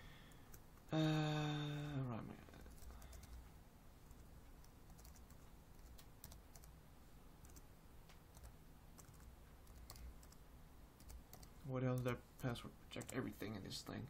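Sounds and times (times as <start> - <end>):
typing on laptop keyboard: 2.6 - 3.4, 4.1 - 6.8, 7.4 - 7.6, 8.3 - 10.4, 11.0 - 14.0.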